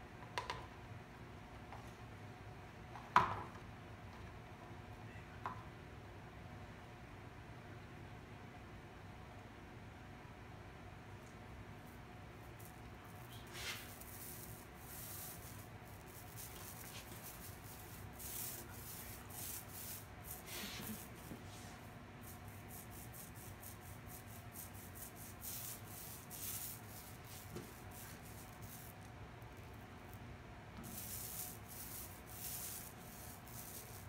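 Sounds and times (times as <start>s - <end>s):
paint roller swishing on metal: 12.6s - 29.0s, 30.8s - 34.0s.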